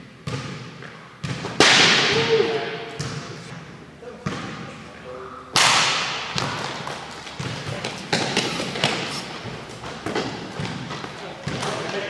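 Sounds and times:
plastic bat hitting ball: 1.4 - 2.4, 5.5 - 7.5.

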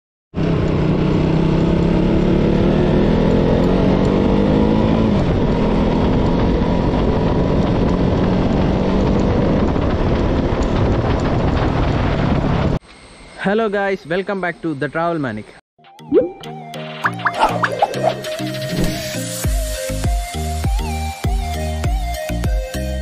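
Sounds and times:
motorcycle engine running: 0.4 - 11.6.

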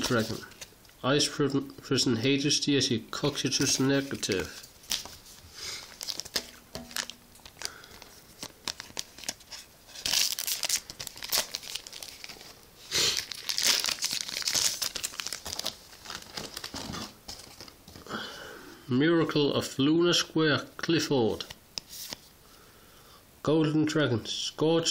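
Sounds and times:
foil wrapper crinkling and tearing: 0.0 - 0.7, 3.6 - 17.8.

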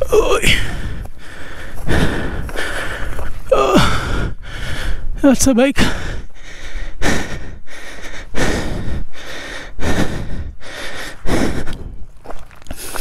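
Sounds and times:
person breathing heavily: 0.0 - 13.0.

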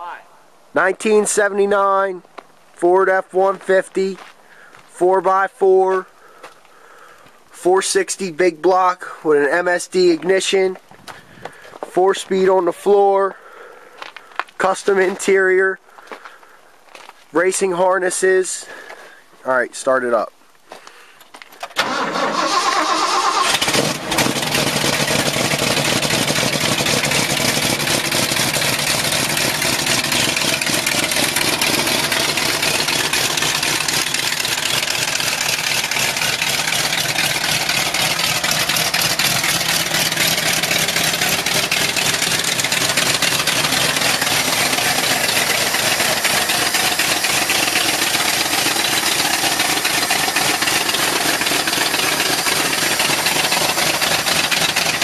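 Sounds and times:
engine cranking on starter: 21.6 - 55.0
engine idling: 21.8 - 55.0.

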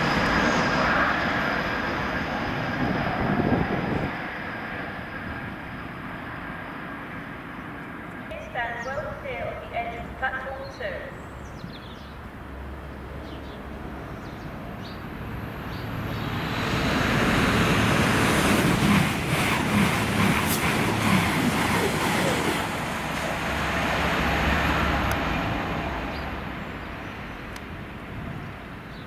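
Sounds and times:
train wheels rushing on rails: 0.0 - 8.3, 15.0 - 28.8.

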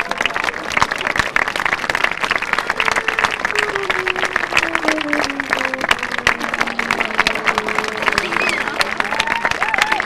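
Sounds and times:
audience applauding: 0.0 - 10.0
instrument playing held notes: 2.2 - 9.0.

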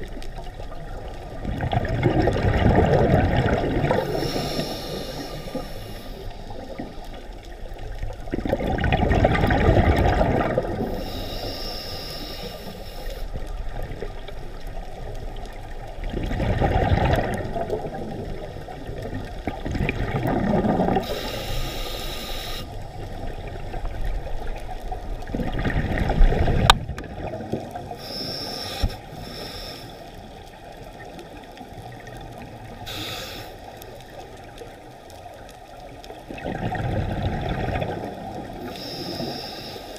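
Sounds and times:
exhaled bubbles rushing: 0.0 - 5.6, 7.9 - 11.0, 15.3 - 21.2, 23.0 - 28.0, 36.2 - 38.6
diver breathing through regulator: 3.8 - 7.1, 10.7 - 13.4, 20.6 - 22.9, 28.0 - 30.2, 32.8 - 33.8, 38.6 - 39.9.

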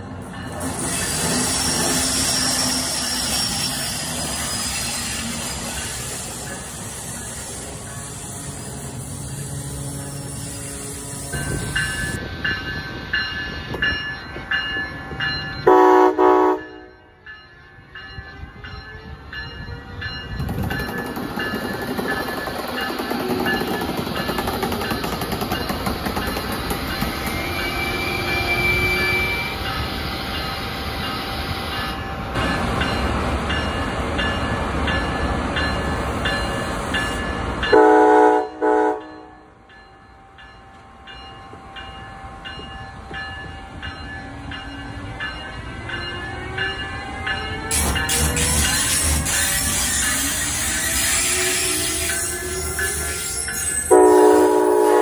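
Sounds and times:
train horn blasts: 15.6 - 17.1, 37.7 - 39.4, 53.9 - 55.0
train wheels clicking over rail joints: 20.2 - 27.8, 47.7 - 54.0.

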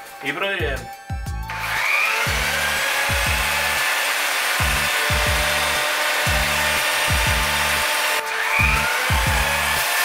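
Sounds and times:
belt grinder motor whirring: 1.5 - 10.0.

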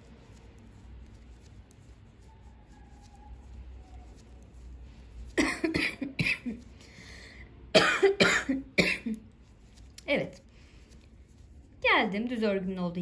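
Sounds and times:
person coughing: 5.4 - 6.6, 7.8 - 9.2.

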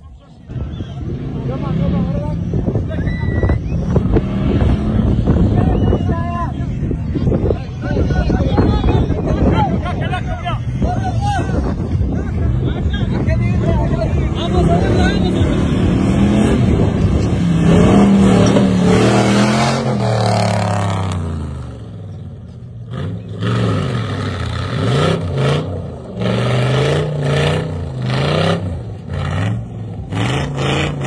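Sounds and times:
truck engine revving: 0.3 - 31.0.

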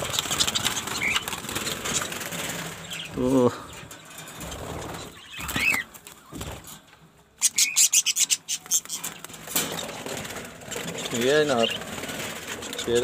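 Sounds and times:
budgerigar wingbeats: 0.0 - 3.1.

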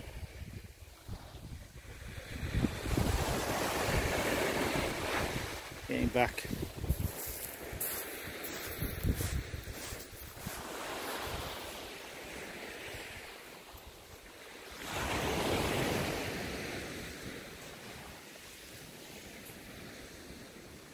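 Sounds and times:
wind buffeting microphone: 0.0 - 14.1
sea waves breaking: 0.0 - 20.9.

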